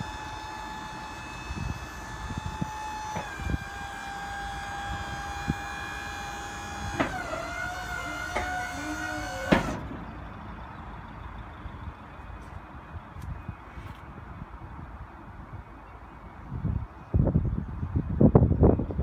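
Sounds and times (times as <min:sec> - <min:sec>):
hydraulic pump whining: 0:00.0 - 0:12.0
clunk: 0:06.9 - 0:10.1.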